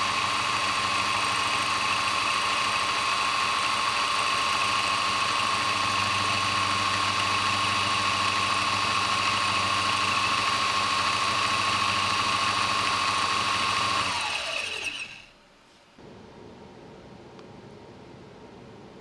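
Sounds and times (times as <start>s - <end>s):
coil winder high whine: 0.0s - 15.5s.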